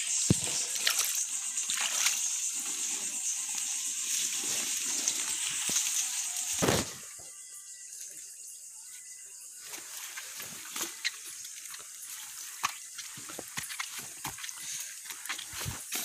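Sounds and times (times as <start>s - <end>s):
steady high hiss: 0.0s - 16.0s
small water splashes: 0.3s - 2.3s.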